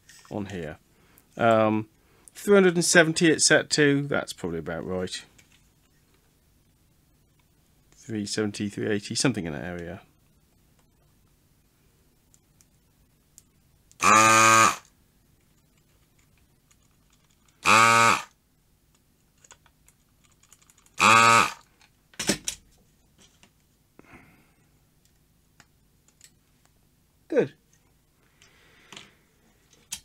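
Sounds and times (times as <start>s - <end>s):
vacuum pump buzzing: 14.0s - 14.9s, 17.6s - 18.4s, 21.0s - 21.7s.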